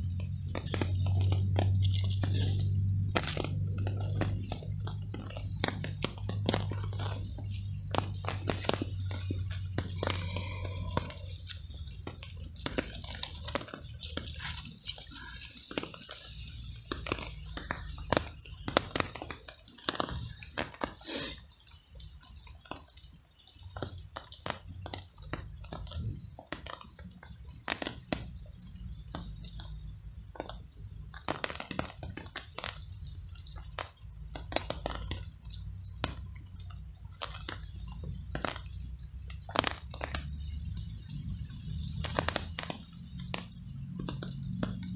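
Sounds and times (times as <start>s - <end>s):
low rumble: 0.0s - 18.9s.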